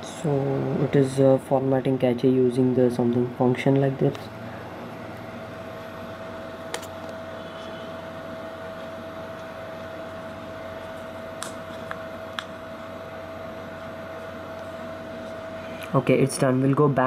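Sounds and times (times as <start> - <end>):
background hum: 0.0 - 17.0.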